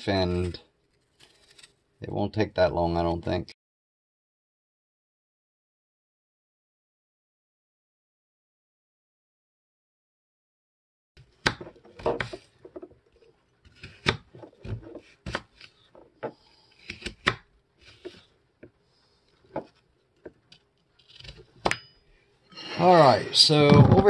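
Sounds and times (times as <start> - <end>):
knife cutting on plastic board: 11.2 - 13.0, 13.6 - 18.8, 19.4 - 21.8.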